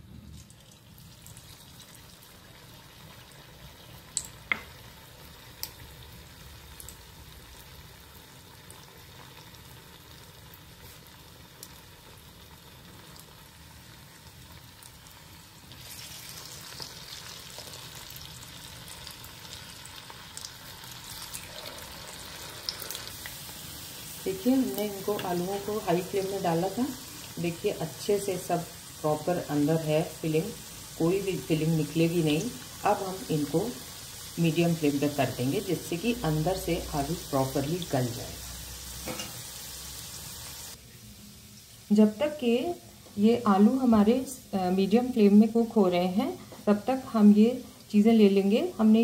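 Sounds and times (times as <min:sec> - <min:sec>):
food sizzling in hot oil: 0:00.0 - 0:49.0.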